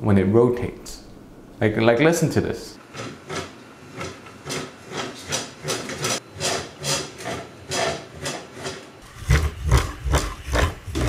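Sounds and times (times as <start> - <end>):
spool rasping on holder: 2.8 - 11.0.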